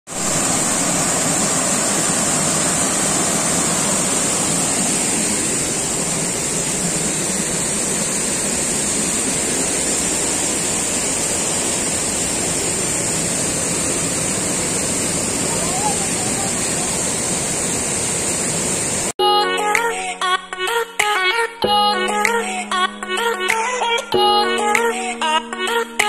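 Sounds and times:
steady high hiss: 0:00.1 - 0:19.1
water rushing over boulders: 0:00.1 - 0:19.1.

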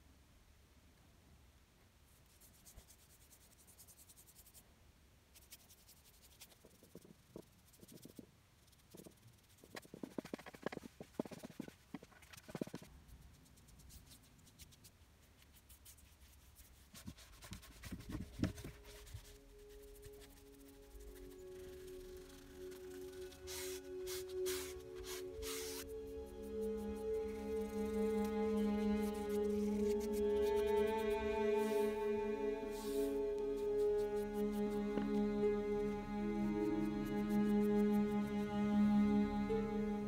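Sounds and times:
cloth rubbing on wood: 0:16.0 - 0:35.1.

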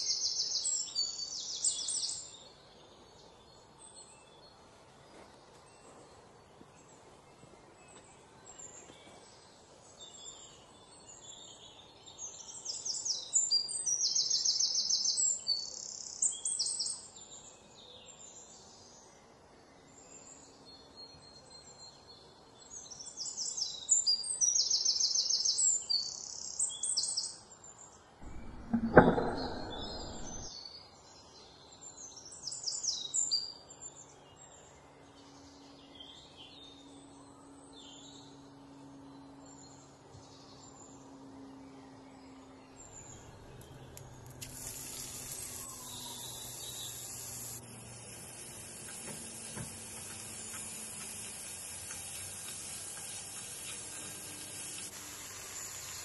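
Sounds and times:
small birds chirping: 0:41.8 - 0:56.0
onions sizzling in a pan: 0:44.4 - 0:56.0.

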